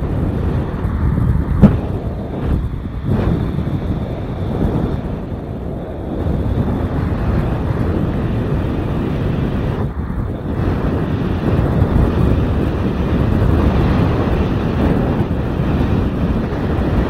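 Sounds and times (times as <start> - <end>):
wind rushing over microphone: 0.0 - 17.0.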